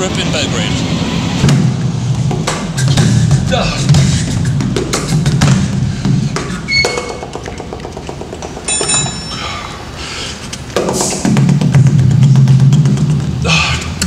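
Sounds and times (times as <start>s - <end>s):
percussion music: 1.4s - 9.5s, 10.7s - 13.4s
short ringing notes: 8.7s - 9.7s.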